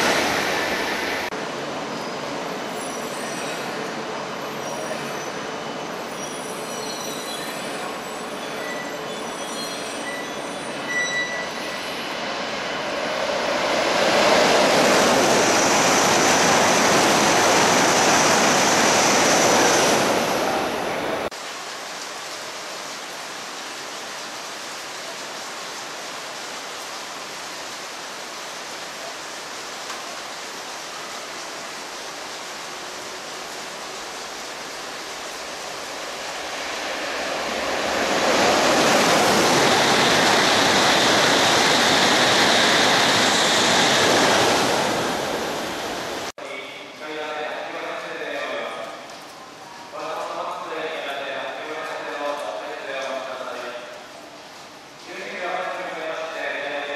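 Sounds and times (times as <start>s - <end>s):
heavy rain: 0.0s - 6.7s, 7.7s - 56.9s
high-speed train rushing past: 0.0s - 21.4s, 24.5s - 46.3s.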